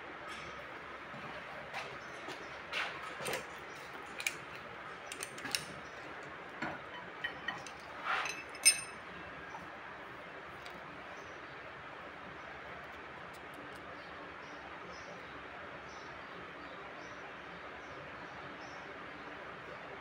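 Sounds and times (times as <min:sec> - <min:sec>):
metal tools clinking on engine: 0:03.2 - 0:09.2.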